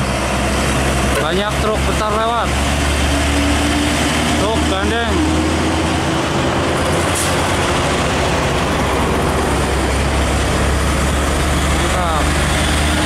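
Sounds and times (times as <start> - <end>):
diesel truck engine rumble: 0.0 - 13.0
road noise: 0.0 - 13.0.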